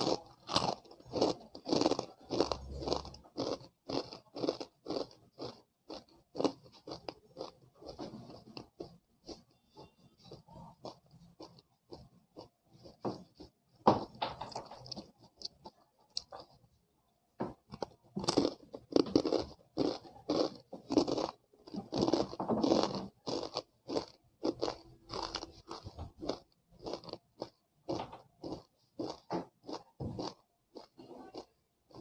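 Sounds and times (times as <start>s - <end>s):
crunchy snack biting and chewing: 0.0s - 9.5s, 10.2s - 13.5s, 17.7s - 32.0s.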